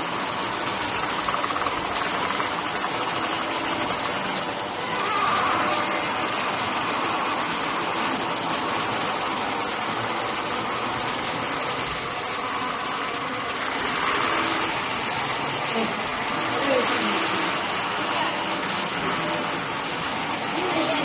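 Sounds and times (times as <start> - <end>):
laminating machine running: 0.0 - 21.0.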